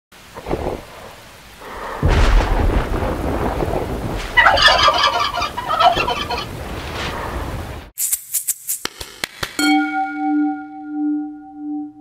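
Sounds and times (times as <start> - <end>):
rain: 0.1 - 7.9
thunder rumbling: 0.2 - 7.9
turkey gobbling: 4.4 - 6.6.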